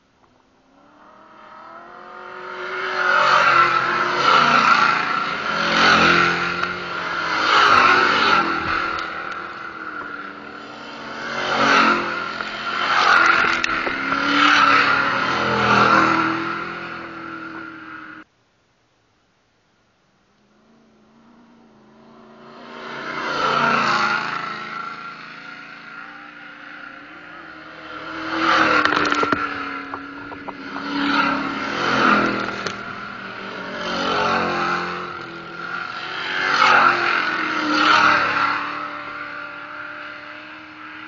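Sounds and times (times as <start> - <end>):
race car engine revving: 21.2 - 41.0.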